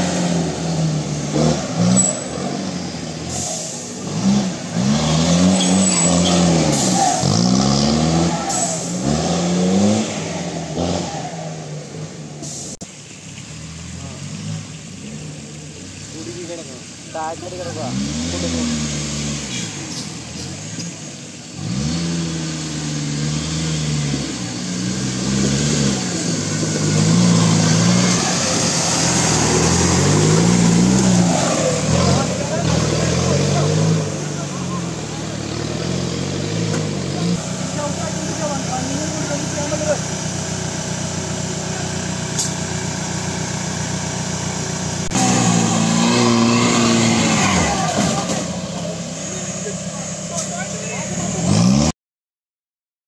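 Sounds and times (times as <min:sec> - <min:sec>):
engine revving: 0:00.0 - 0:12.6, 0:16.1 - 0:52.0
hiss: 0:03.2 - 0:04.0.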